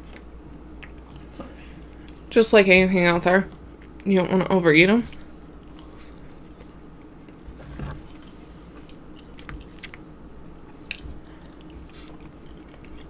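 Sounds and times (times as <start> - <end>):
chewing nuts crunching: 0.0 - 2.3, 5.0 - 13.0.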